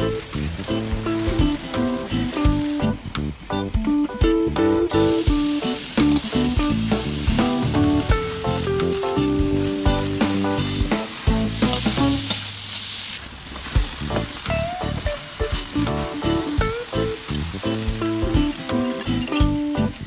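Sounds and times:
plucked string music: 0.0 - 12.4, 14.1 - 20.0
food sizzling in a pan: 0.0 - 20.0.

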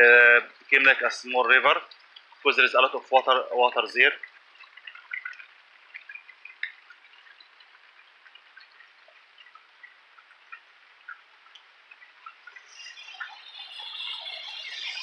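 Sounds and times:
steady rain falling: 0.0 - 4.6, 5.3 - 15.0
drips of water close by: 0.0 - 15.0
car tyres on wet street: 12.4 - 15.0.

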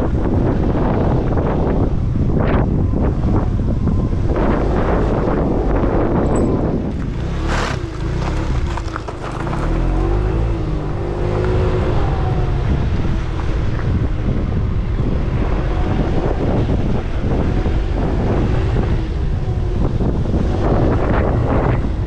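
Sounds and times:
wind buffeting microphone: 0.0 - 22.0
scooter rumbling on rough ground: 4.5 - 22.0.

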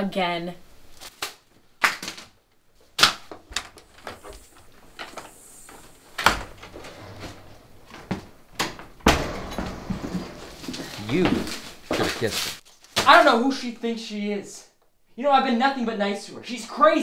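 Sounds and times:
footsteps on wooden floor: 7.8 - 12.3
door knocks and thuds: 8.0 - 12.0.

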